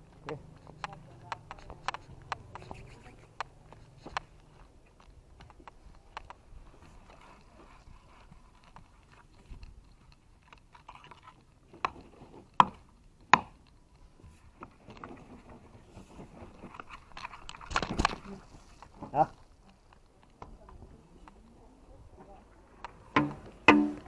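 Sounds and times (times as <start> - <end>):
hoe knocks: 23.2 - 24.0.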